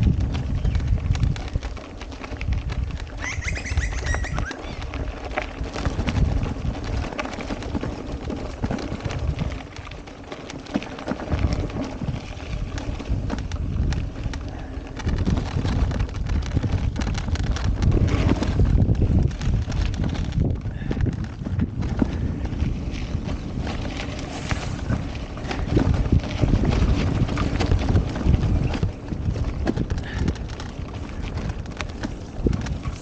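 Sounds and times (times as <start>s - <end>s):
bike rattling over bumps: 0.0s - 33.0s
bike tyre noise: 0.0s - 33.0s
wind rumble on microphone: 0.0s - 33.0s
bird calling: 3.2s - 4.9s.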